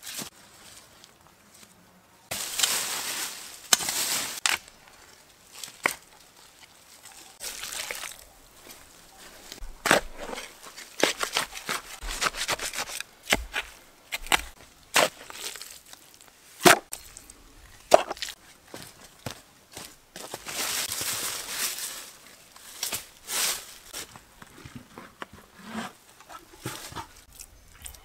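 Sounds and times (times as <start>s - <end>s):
dry leaves rustling and crunching: 2.3s - 24.3s
spade digging into soil: 8.6s - 15.7s, 16.6s - 17.1s.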